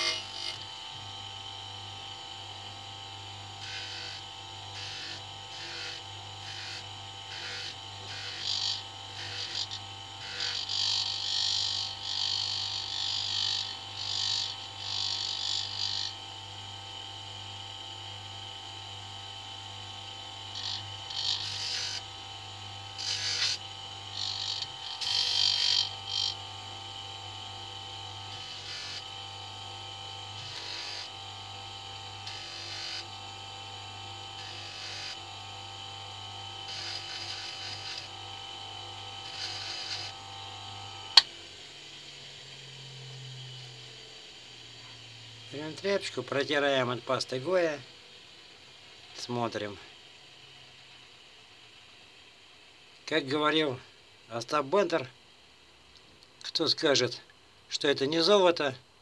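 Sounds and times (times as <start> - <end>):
nut rubbing on polishing wheel: 0.0 - 0.6, 36.7 - 38.1, 39.2 - 40.1
electric motor humming: 0.0 - 50.5.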